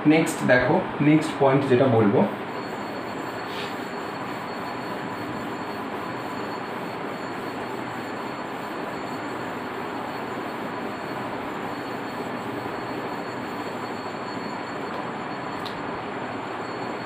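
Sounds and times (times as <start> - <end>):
thin high whine: 0.0 - 17.0.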